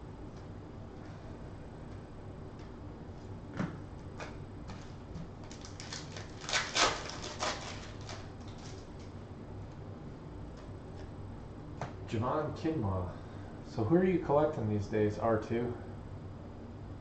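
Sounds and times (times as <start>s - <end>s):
foil wrapper tearing and crinkling: 5.4s - 8.9s.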